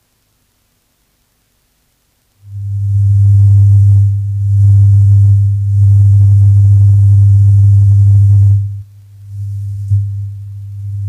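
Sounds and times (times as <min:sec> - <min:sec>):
tape hiss: 0:00.0 - 0:11.0
deep steady drone tone: 0:02.5 - 0:11.0.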